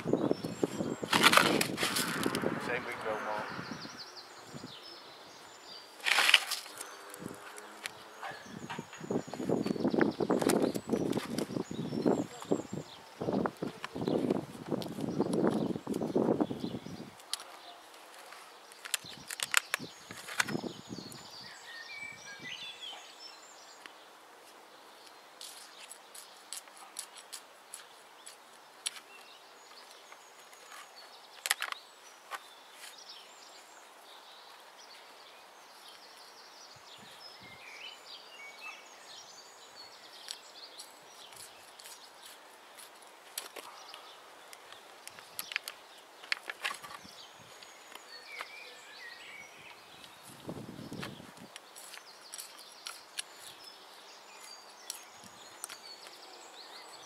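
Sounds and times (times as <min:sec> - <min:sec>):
stones clicking and scraping in soil: 0:00.0 - 0:03.2, 0:05.6 - 0:12.7, 0:13.4 - 0:16.2, 0:17.1 - 0:21.3, 0:25.0 - 0:33.8, 0:40.1 - 0:48.6, 0:49.7 - 0:56.2
small birds chirping: 0:00.0 - 0:57.0.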